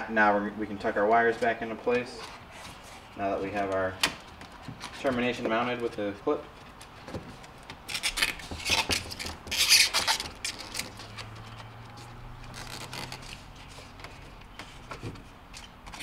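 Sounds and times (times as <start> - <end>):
scratchy rubbing and scraping: 7.9 - 14.9.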